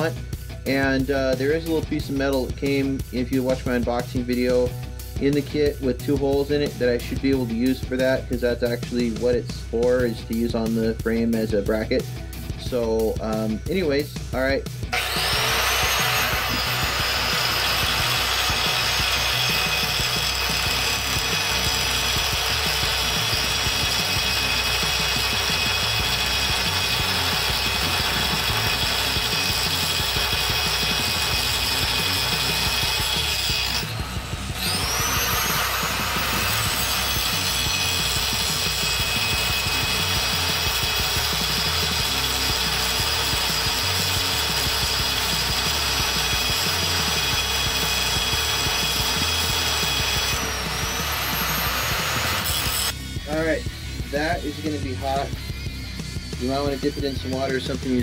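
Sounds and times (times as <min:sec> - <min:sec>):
angle grinder cutting metal pipe: 0:12.6 - 0:58.0.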